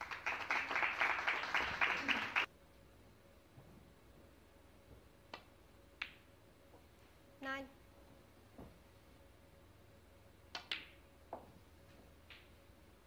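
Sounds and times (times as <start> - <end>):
audience applause: 0.0 - 2.5.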